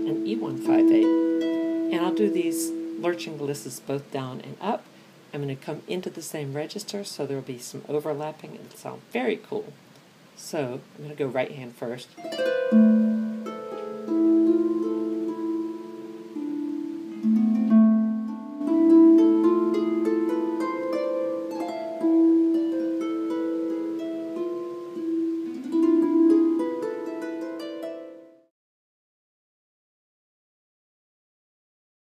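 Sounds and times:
harp glissandos: 0.0 - 4.4, 12.2 - 28.5.

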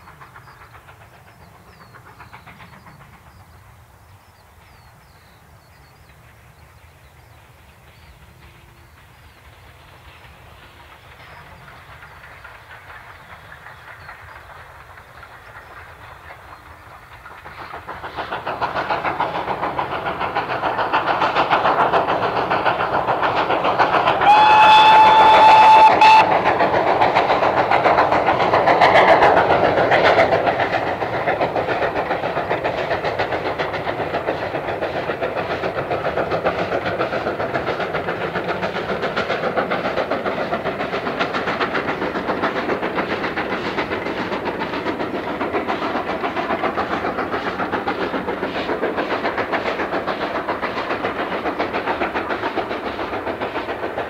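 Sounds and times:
steam locomotive exhaust beats: 0.0 - 54.0
steam whistle: 24.2 - 26.4.

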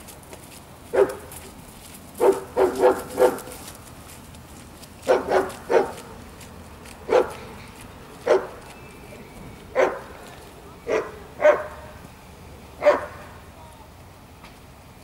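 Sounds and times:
dog barking sharply: 2.2 - 3.5, 5.1 - 6.0, 7.1 - 7.5, 9.8 - 10.1, 10.9 - 11.9, 12.8 - 13.3.

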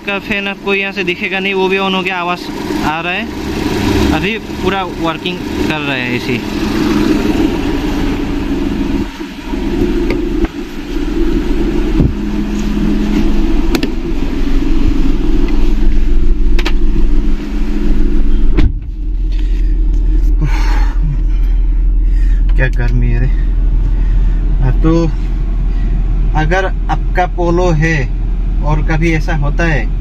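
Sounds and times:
diesel engine idling: 0.0 - 30.0
radiator fan running: 0.0 - 30.0
car door shutting: 9.8 - 10.8, 11.9 - 14.0, 16.5 - 17.0, 18.2 - 19.7.

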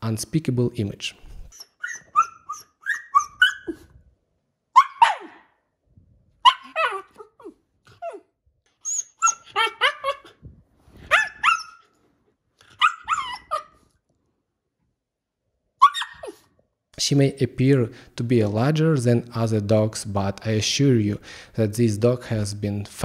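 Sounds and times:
dog barking and yipping: 1.5 - 3.9, 4.7 - 5.5, 6.4 - 8.2, 8.8 - 10.4, 11.0 - 12.0, 12.6 - 13.8, 15.8 - 16.5.

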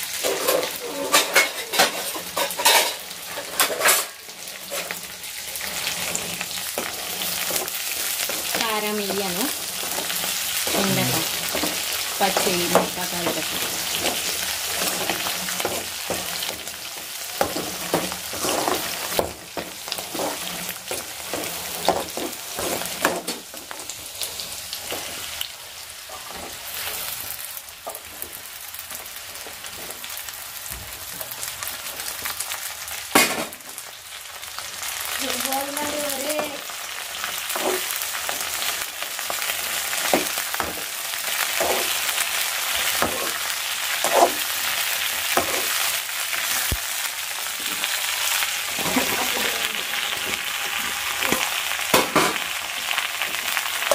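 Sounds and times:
vegetables sizzling in hot oil: 0.0 - 53.9
metal spatula scraping pan: 0.2 - 5.0, 19.8 - 23.6.

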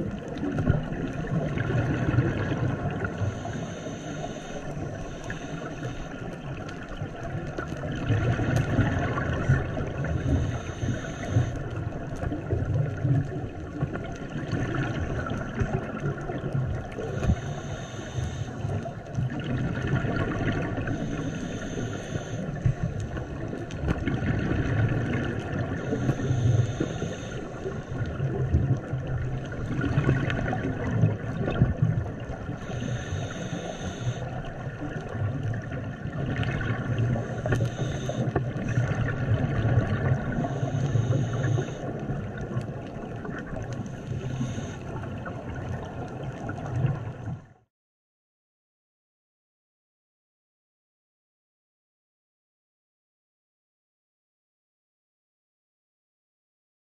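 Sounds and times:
exhaled bubbles rushing: 0.0 - 3.5, 6.3 - 10.6, 11.7 - 17.2, 19.1 - 21.2, 22.8 - 26.1, 27.6 - 32.6, 34.6 - 37.5, 38.4 - 44.0
regulator inhalation hiss: 3.3 - 6.2, 10.3 - 11.6, 17.3 - 18.7, 21.0 - 22.6, 25.8 - 27.7, 32.6 - 34.3, 37.2 - 38.3, 40.4 - 41.9.

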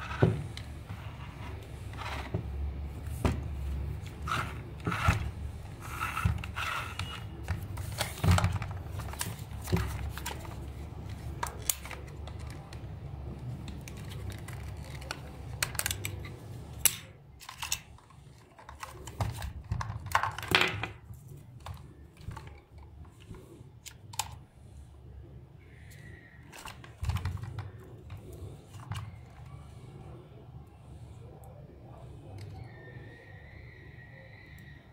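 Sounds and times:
plastic toy parts clicking: 13.6 - 21.0.

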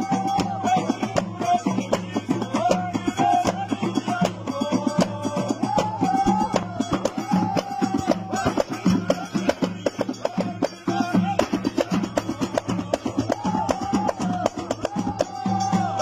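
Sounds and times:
frame drums beating rhythm: 0.0 - 16.0.

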